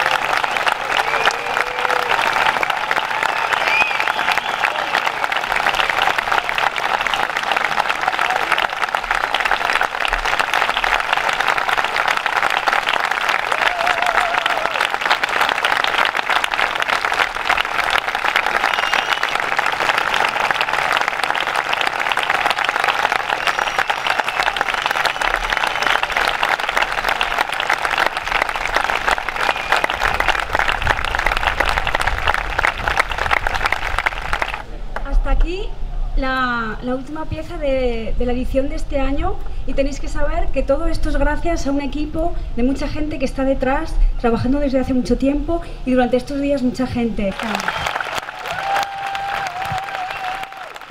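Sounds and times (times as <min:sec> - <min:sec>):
large audience applauding: 0:00.0 - 0:34.7, 0:47.3 - 0:50.9.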